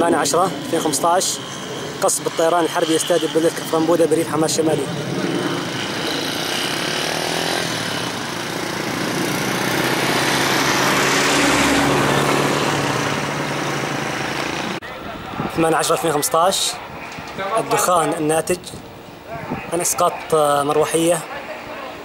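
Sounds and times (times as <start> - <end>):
engine drone: 0.0 - 15.5
broad rushing noise: 0.0 - 22.0.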